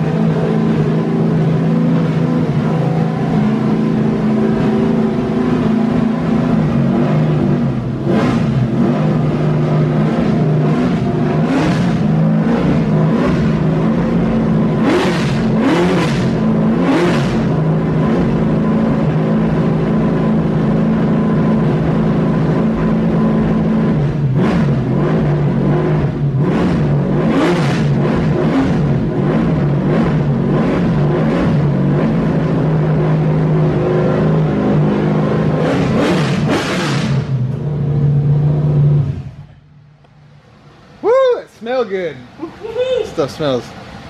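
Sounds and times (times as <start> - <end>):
race car engine revving: 0.0 - 41.0.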